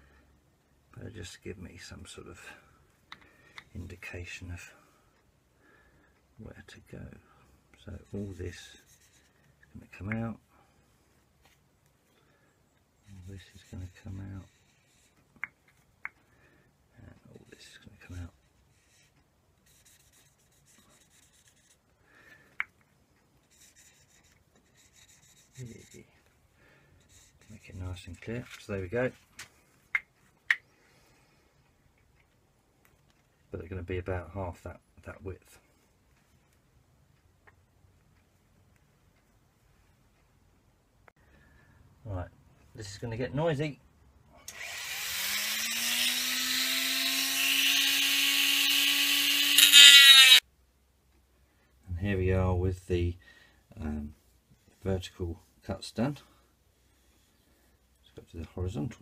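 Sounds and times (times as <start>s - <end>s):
marker scratching on wood: 7.9s - 9.4s, 13.0s - 15.3s, 18.5s - 21.9s, 23.4s - 26.1s, 27.0s - 28.1s
rotary tool whine: 44.5s - 50.4s
disc grinding into wood: 45.2s - 50.4s.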